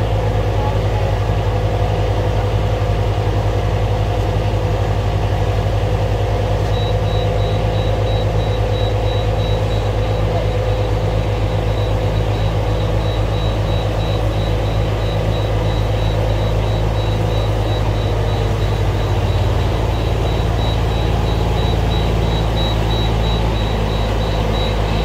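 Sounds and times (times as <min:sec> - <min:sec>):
small engine running: 0:06.6 - 0:25.0.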